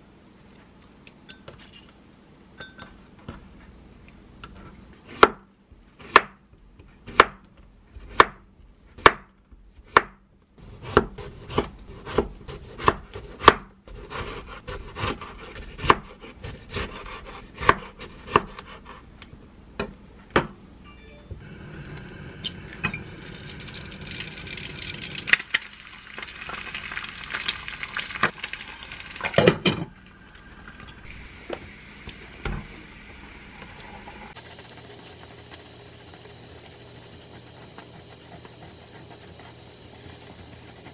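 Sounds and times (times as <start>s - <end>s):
knife chopping on wooden board: 5.1s - 5.4s, 6.0s - 6.4s, 7.1s - 8.4s, 9.0s - 19.0s.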